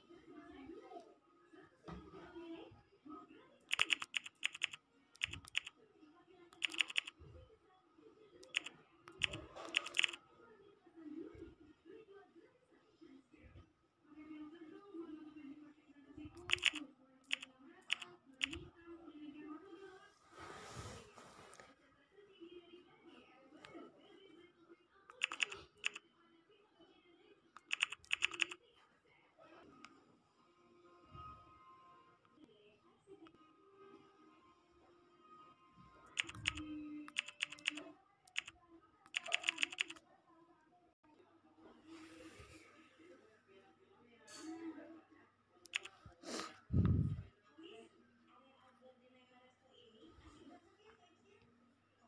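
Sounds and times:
phone keyboard clicks: 3.7 - 5.7, 6.6 - 7.1, 8.4 - 10.2, 16.4 - 18.6, 25.1 - 26.0, 27.6 - 28.6, 36.2 - 38.5, 39.1 - 40.0, 45.7 - 45.9.

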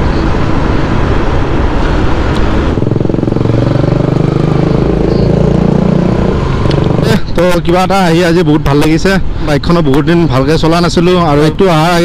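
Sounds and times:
motorcycle engine running steadily: 0.0 - 8.3
wind rushing over microphone: 0.0 - 12.0.

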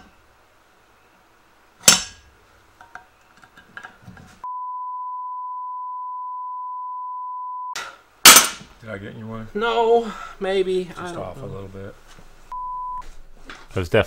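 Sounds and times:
loud metal clank: 1.8 - 2.2, 7.8 - 8.7
censor bleep tone: 4.4 - 7.8, 12.5 - 13.0.

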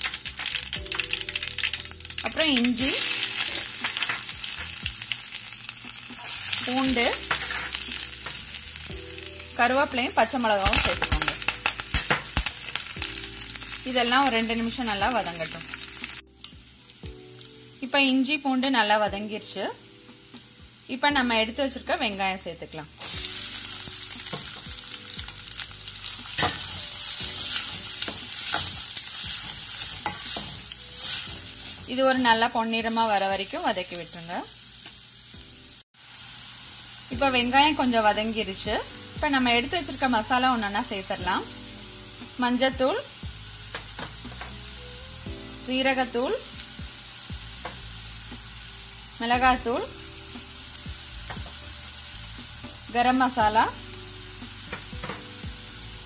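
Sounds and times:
food sizzling in hot oil: 0.0 - 56.0
metal spoon scraping a pan: 26.2 - 31.3.

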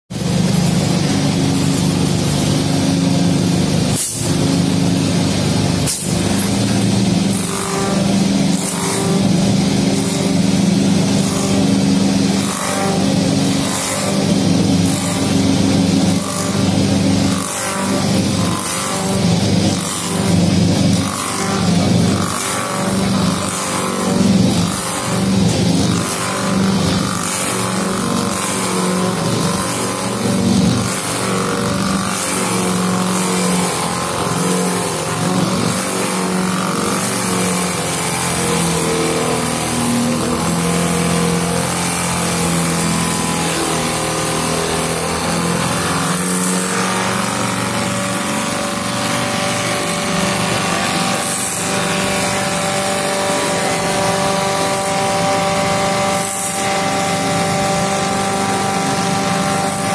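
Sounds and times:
lathe cutting wood: 0.1 - 59.9
lathe motor hum: 0.2 - 59.9.

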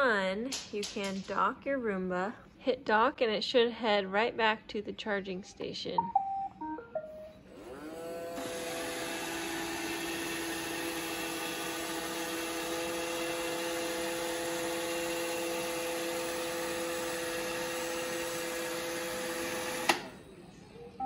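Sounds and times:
robot vacuum whirring: 7.5 - 20.1.

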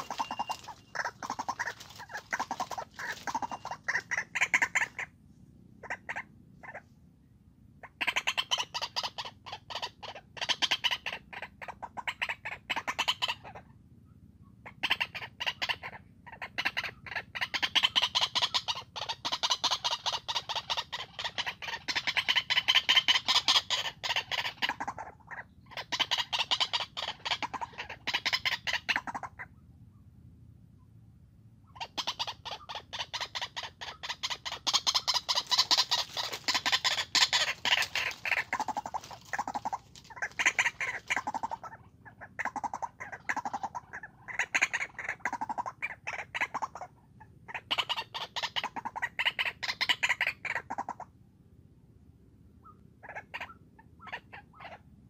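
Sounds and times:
waterhens calling harshly: 0.0 - 5.1, 31.8 - 46.9.

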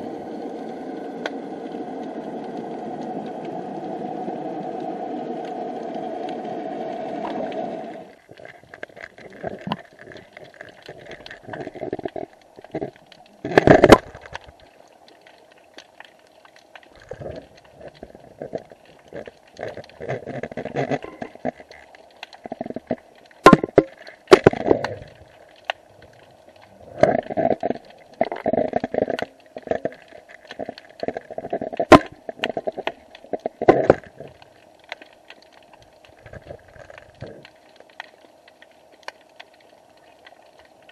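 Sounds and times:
steady noise: 22.6 - 34.6
camera housing knocking underwater: 23.5 - 23.9.

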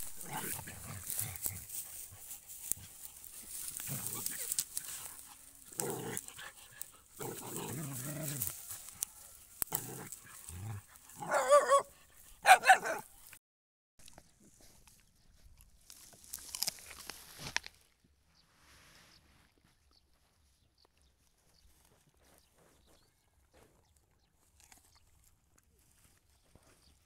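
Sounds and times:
dogs growling: 0.0 - 8.8, 9.7 - 13.0
rustling of dry grass: 0.0 - 12.4, 14.0 - 27.0
dog yelping: 11.2 - 13.0.

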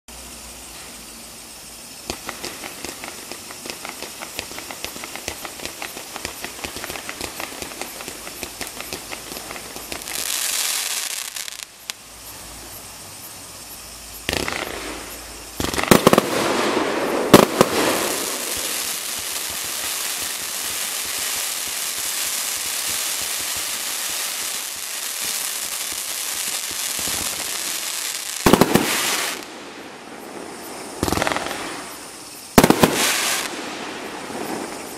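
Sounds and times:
fireworks hiss and crackle: 0.1 - 34.9
fireworks shots firing: 2.1 - 11.6, 14.2 - 34.9
firework bang: 14.3 - 21.3, 28.4 - 29.6, 32.6 - 34.9.

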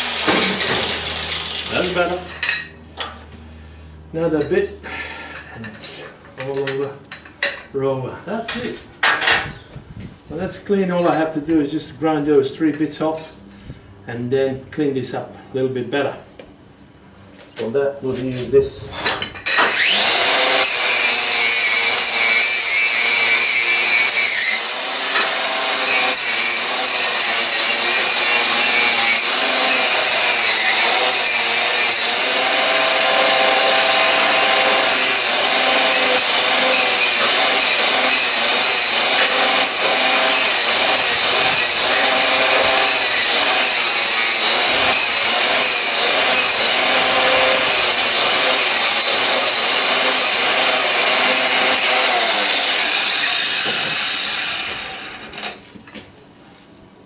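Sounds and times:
angle grinder grinding metal: 0.0 - 3.2, 18.9 - 55.6.

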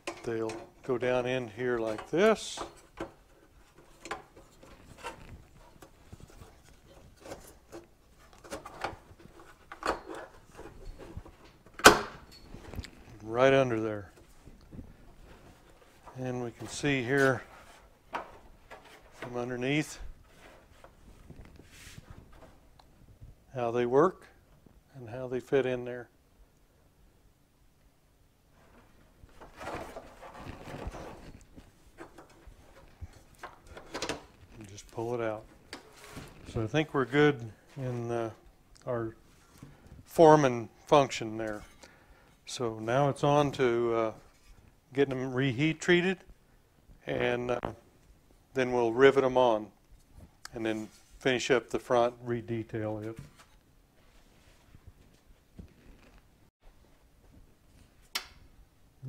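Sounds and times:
plastic rubbing and scraping: 0.4 - 11.8, 12.5 - 22.7, 28.6 - 38.4.

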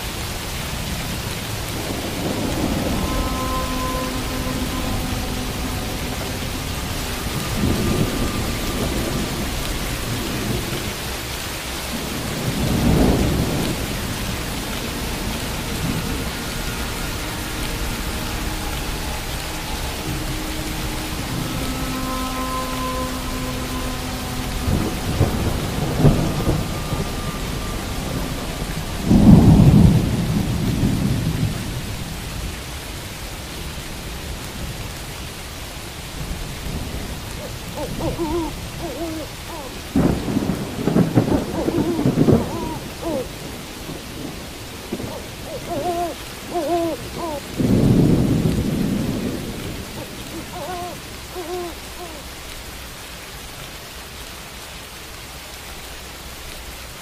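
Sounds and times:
steady rain: 0.0 - 57.0
thunder: 1.0 - 11.2, 11.9 - 16.9, 22.7 - 32.3, 39.8 - 51.0
owl hooting: 2.9 - 8.6, 37.4 - 39.8, 41.4 - 43.3, 45.1 - 47.6, 50.0 - 52.2.

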